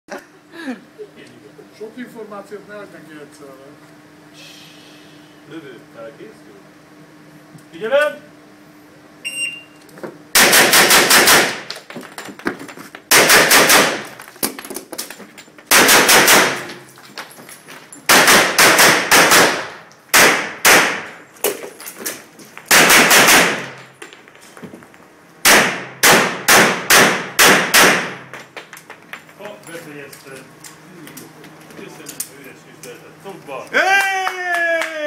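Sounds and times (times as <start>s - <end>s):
short high timer beep: 9.2s - 9.8s
rapid pistol shots echoing: 10.4s - 11.6s, 13.1s - 14.0s, 15.7s - 16.7s, 18.1s - 21.1s, 22.7s - 23.8s, 25.4s - 28.3s.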